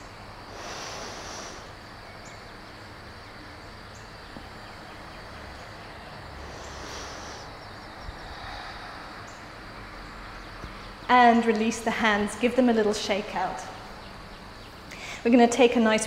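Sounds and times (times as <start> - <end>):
faint steady hum: 0.0 - 16.0
soft exhaled breaths: 0.4 - 1.9, 6.3 - 10.0.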